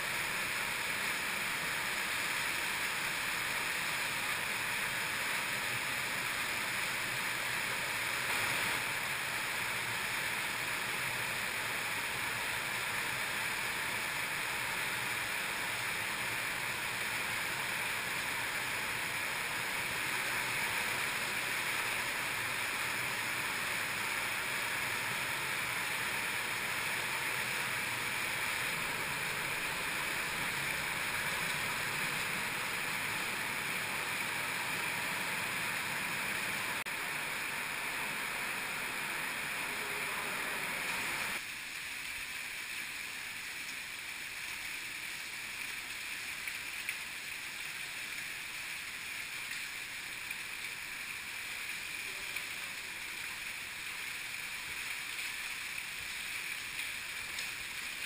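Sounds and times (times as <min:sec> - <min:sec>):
cave stream rushing: 0:00.0 - 0:58.0.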